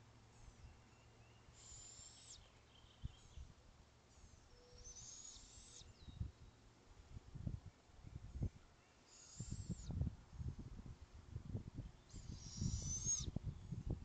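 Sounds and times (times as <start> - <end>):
owlet raspy hissing calls: 1.6 - 2.4, 4.9 - 5.8, 12.1 - 13.3.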